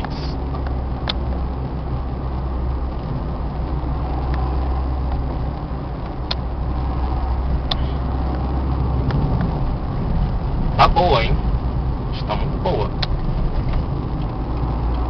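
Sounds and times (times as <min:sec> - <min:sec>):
engine and tyre rumble: 0:00.0 - 0:15.0
sharp clicks: 0:07.7 - 0:07.9.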